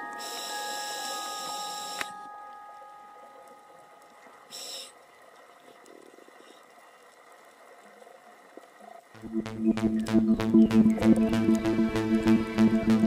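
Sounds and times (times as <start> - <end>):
faint underwater noise: 2.7 - 13.0
background music: 9.2 - 13.0.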